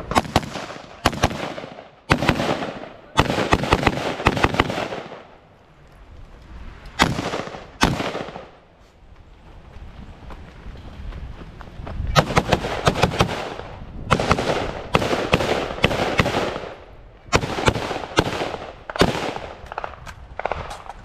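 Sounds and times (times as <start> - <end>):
rifle shots: 0.0 - 5.3, 7.0 - 8.6, 12.2 - 20.9.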